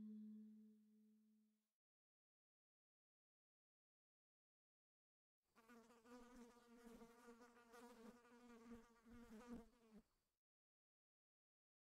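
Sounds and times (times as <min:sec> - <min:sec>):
flying insect buzzing: 0:05.6 - 0:10.0.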